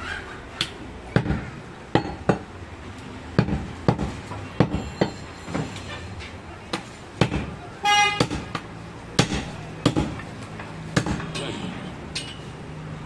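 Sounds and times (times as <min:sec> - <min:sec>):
chopper chopping meat on wood: 0:01.2 - 0:02.5, 0:03.4 - 0:04.8, 0:06.7 - 0:07.6, 0:08.2 - 0:10.2, 0:11.0 - 0:11.3.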